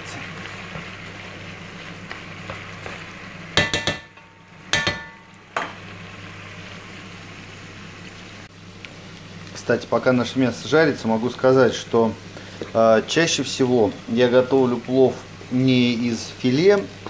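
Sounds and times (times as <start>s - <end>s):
chicken sizzling in oil: 0.0s - 17.0s
metal spatula knocking on pot: 3.6s - 5.8s.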